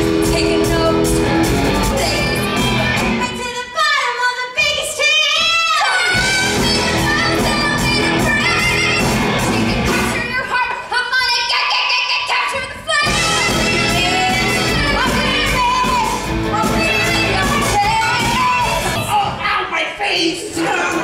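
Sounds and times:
band accompaniment: 0.0 - 3.8, 6.0 - 10.6, 12.6 - 19.6
person singing: 11.8 - 19.4.

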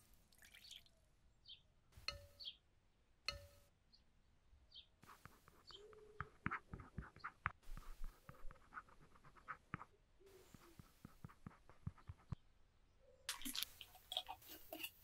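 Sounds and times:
spoon stirring with soft clicks: 13.3 - 15.0.

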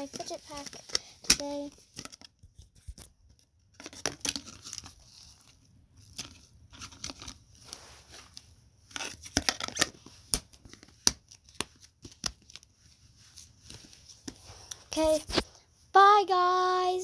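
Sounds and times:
plastic toys clicking and rustling: 0.0 - 3.1.

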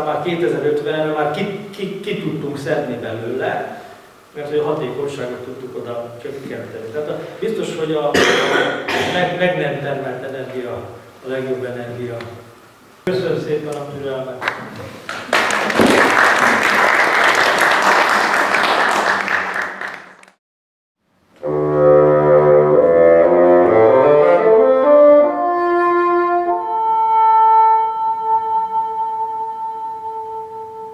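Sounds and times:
audience applause: 15.1 - 20.4
sustained instrumental chords: 21.4 - 30.9.

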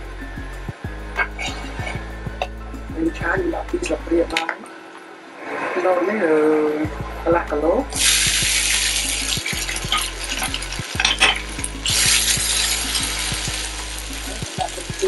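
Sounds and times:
noodles sizzling in frying pan: 8.0 - 15.0.

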